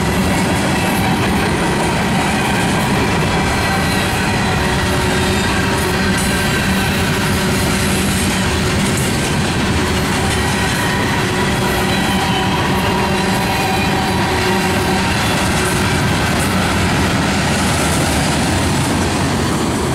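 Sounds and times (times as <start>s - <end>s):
train wheels rumbling on rails: 0.0s - 19.9s.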